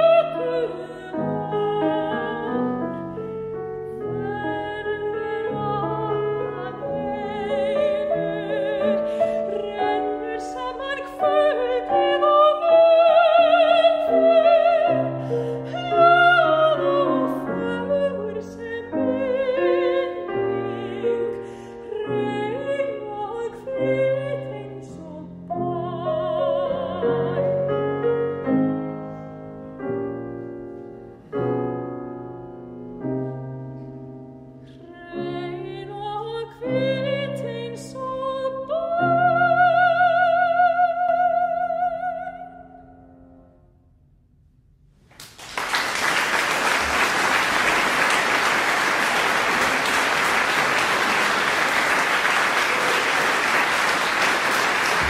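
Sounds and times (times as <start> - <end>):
soprano singing: 0.0 - 29.0, 34.6 - 43.0
grand piano: 0.0 - 55.0.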